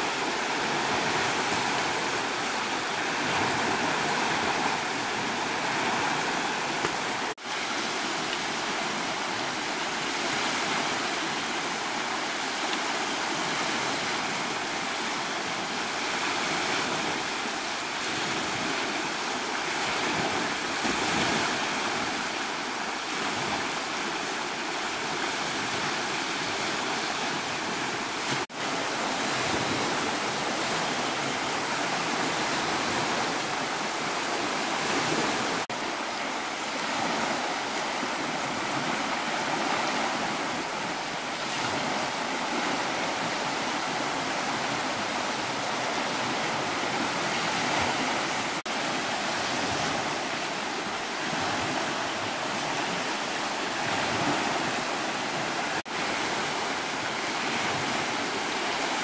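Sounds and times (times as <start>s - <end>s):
rushing water: 0.0s - 59.0s.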